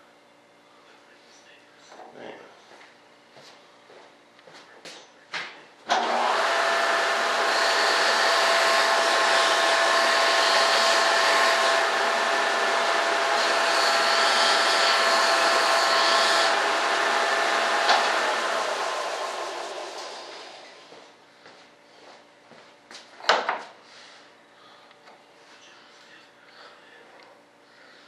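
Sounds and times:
electric workshop machine running: 5.8 - 21.0.

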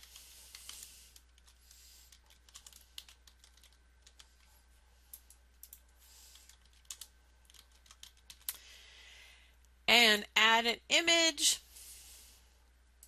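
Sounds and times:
faint keyboard typing: 0.0 - 8.6.

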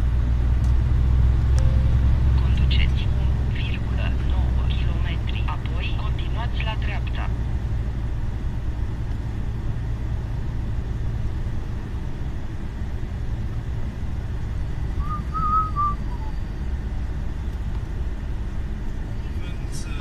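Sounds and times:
lorry engine and tyres droning: 0.0 - 20.0
brief whistle: 15.0 - 16.4.

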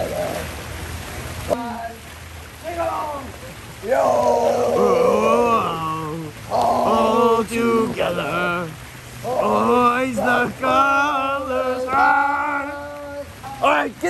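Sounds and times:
fountain water splashing: 0.0 - 14.0
men chanting: 3.8 - 14.0.

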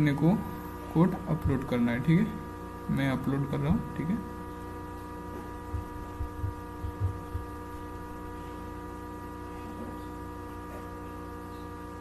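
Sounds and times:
steady electrical hum: 0.0 - 12.0
soft low thumps: 5.4 - 7.9.

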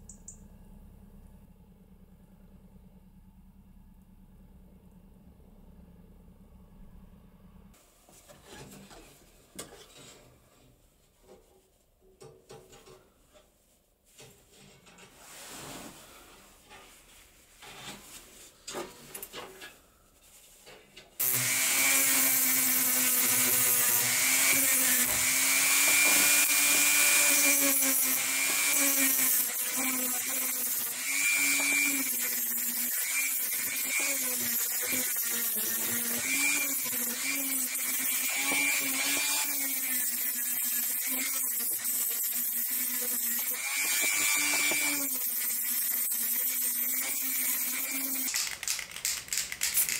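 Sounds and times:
rotary tool grinding metal: 21.2 - 49.9.

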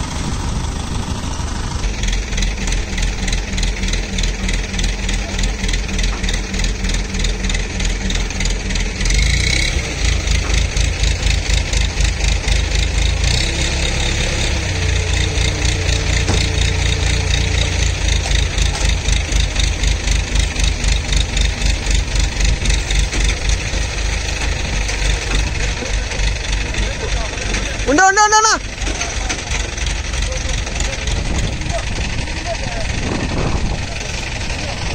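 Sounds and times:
crane diesel engine running: 0.0 - 34.9.

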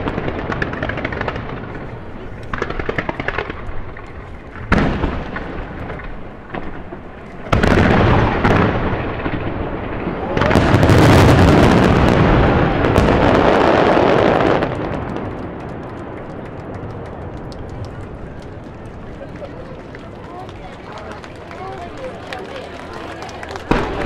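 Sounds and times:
firework shells booming: 0.0 - 19.2
firework crackles: 0.0 - 24.0.

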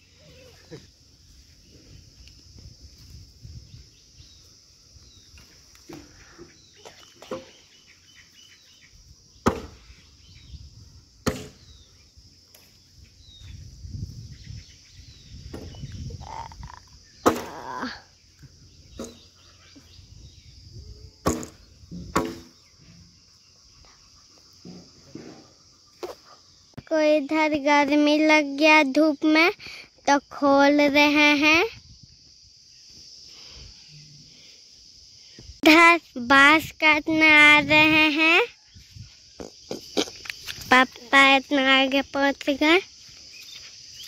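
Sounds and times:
insects buzzing: 0.0 - 44.0
axe chopping bamboo: 9.4 - 9.8, 11.2 - 11.6, 21.2 - 22.5.

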